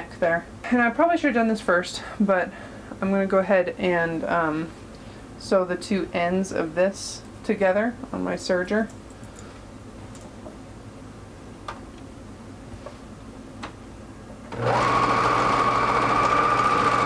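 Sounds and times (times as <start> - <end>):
overlock machine running: 14.5 - 17.0.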